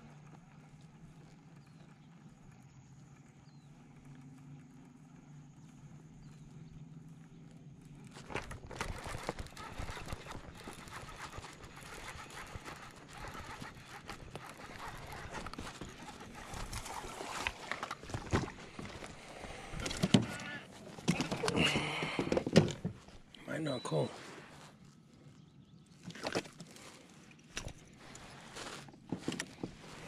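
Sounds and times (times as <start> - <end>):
fish splashing: 9.4 - 20.4.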